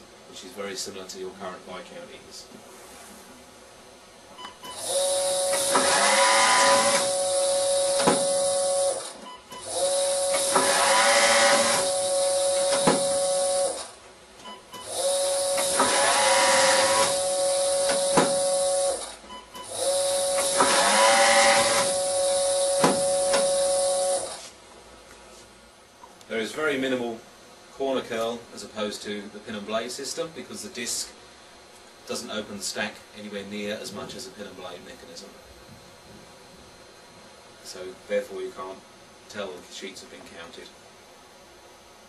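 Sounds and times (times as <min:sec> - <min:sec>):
paper counting machine whine: 0:04.7 - 0:14.0, 0:14.8 - 0:24.5.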